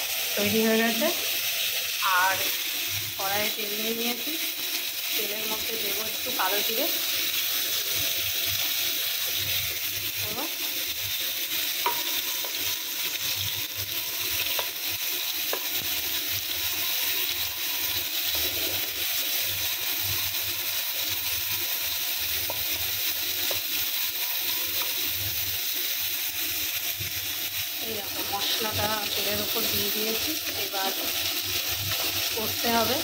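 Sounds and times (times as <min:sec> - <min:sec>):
frying in hot oil sizzling: 0:00.0 - 0:33.0
wooden spatula scraping pan: 0:18.3 - 0:19.0.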